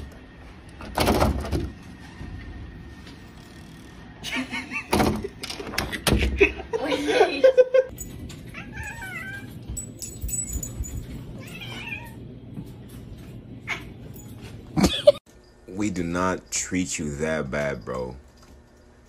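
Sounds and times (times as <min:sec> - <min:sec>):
cat yowling: 0:08.5 - 0:09.5.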